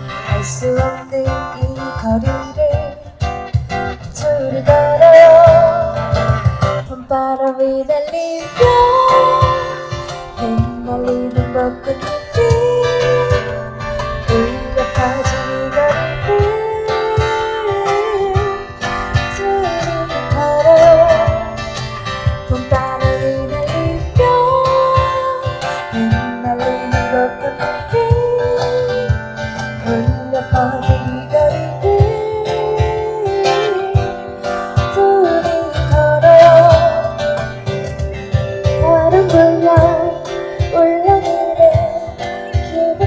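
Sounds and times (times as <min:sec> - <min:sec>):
person singing lead melody: 0:00.0 - 0:03.4, 0:04.0 - 0:43.0
strummed acoustic guitar: 0:00.0 - 0:43.0.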